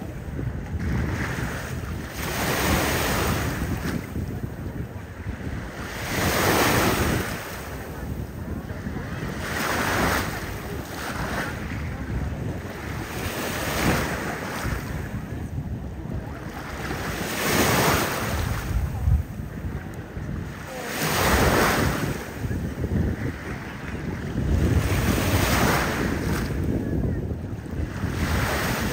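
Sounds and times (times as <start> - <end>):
small waves washing on shore: 0.0 - 28.9
wind buffeting microphone: 0.0 - 28.9.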